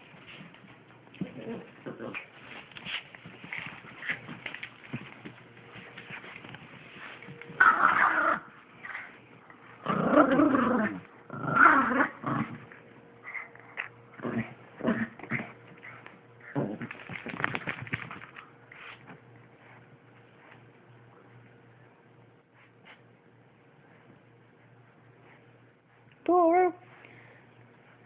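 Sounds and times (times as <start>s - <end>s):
dogs play-growling: 0.3s - 18.4s.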